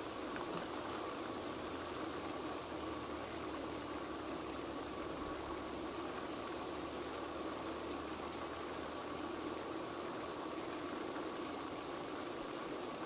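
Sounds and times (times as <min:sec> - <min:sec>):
background hiss: 0:00.0 - 0:13.0.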